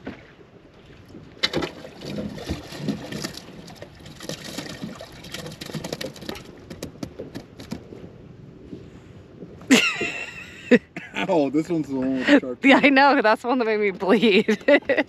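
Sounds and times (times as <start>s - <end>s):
water sloshing and dripping: 0.0s - 7.8s
sharp clicks and knocks: 4.3s - 7.9s.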